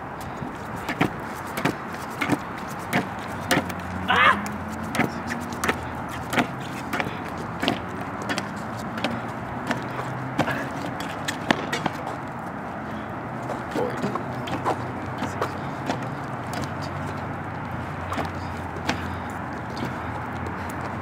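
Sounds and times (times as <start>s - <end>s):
scooter landing clacks: 0.8s - 12.0s, 18.1s - 21.0s.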